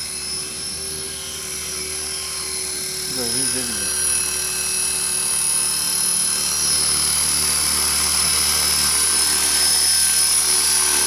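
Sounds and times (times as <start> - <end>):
model helicopter whine: 0.0 - 11.0.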